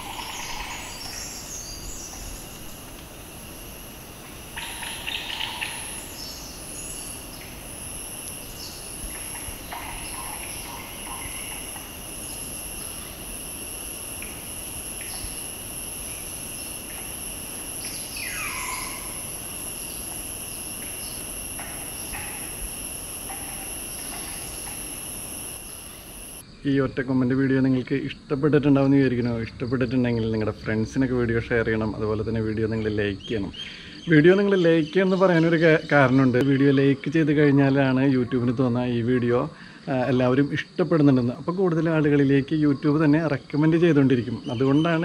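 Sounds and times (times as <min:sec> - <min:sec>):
bird calls: 0:00.0 - 0:26.4, 0:44.3 - 0:45.0
insects droning high-pitched: 0:00.0 - 0:45.0.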